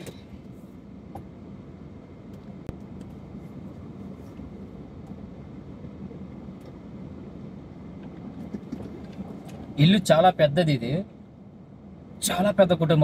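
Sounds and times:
car engine humming: 0.0s - 13.0s.

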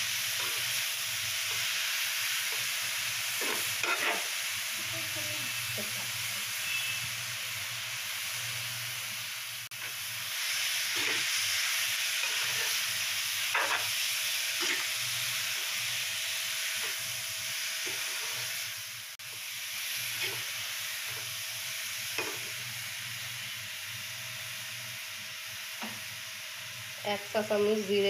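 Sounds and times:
vegetables sizzling in oil: 0.0s - 28.0s
steel spoon scraping a pan: 3.4s - 4.4s, 10.8s - 11.5s, 12.1s - 14.0s, 14.6s - 15.8s, 17.8s - 18.6s, 20.1s - 21.2s, 22.2s - 22.6s.

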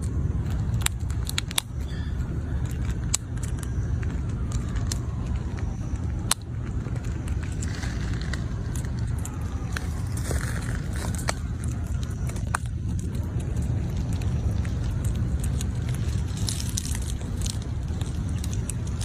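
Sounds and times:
low rumble: 0.0s - 19.0s
squirrel gnawing nut shell: 0.0s - 19.0s.

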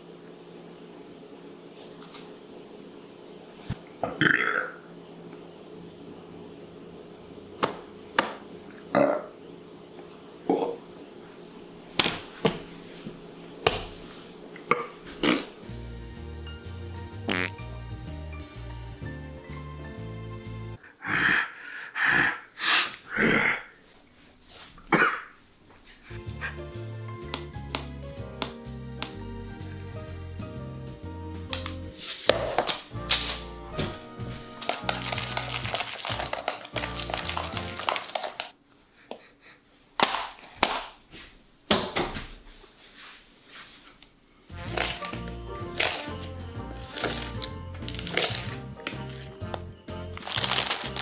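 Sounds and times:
background music: 15.6s - 20.8s, 26.1s - 38.3s, 44.5s - 51.0s
man coughing: 24.9s - 25.4s.

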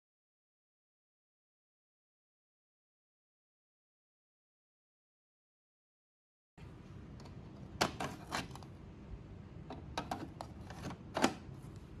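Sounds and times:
plastic tray clicks and knocks: 7.8s - 8.6s.

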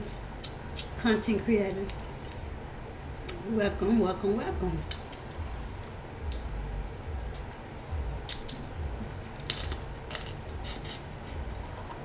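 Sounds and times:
low steady hum: 0.0s - 12.0s
crab shells cracking: 8.3s - 10.4s.

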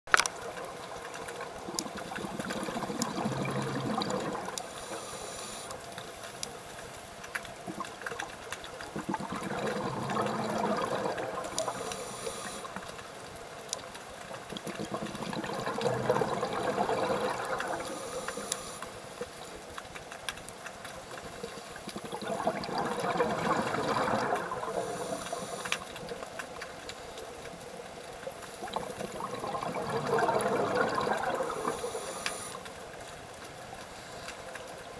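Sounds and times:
bubbling exhalations underwater: 1.6s - 4.6s, 8.9s - 11.8s, 14.5s - 18.0s, 21.9s - 25.6s, 28.6s - 32.0s
hissing regulator inhalations: 3.3s - 6.6s, 11.5s - 12.8s, 17.7s - 19.2s, 24.7s - 26.1s, 30.9s - 32.7s.

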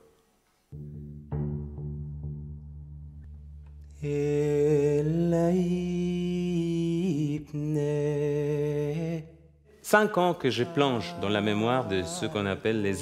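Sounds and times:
man singing long notes: 3.9s - 13.0s.

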